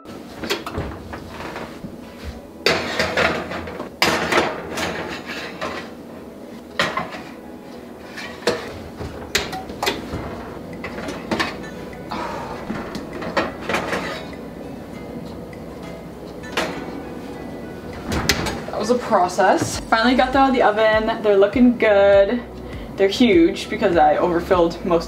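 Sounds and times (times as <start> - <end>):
metal tins clanking on oven racks: 0.0 - 19.8.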